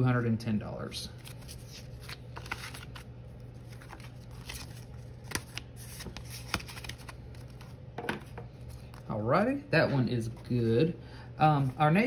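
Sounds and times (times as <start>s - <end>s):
steady low hum: 0.0s - 12.0s
paper rustling: 1.2s - 9.0s.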